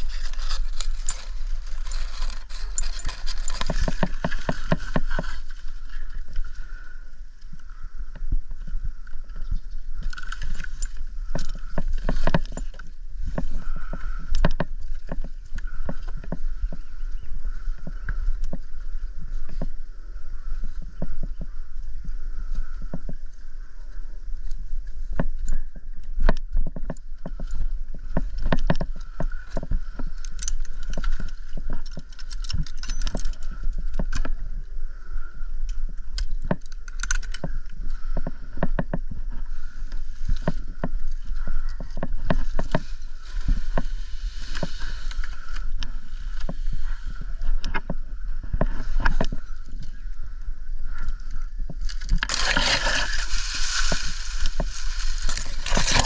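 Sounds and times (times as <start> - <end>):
climbing gear knocking and jangling: 0.0 - 5.6, 10.0 - 16.4, 26.8 - 34.2, 51.9 - 56.0
dry leaf bases knocking: 0.0 - 6.9, 10.2 - 18.7, 51.7 - 56.0.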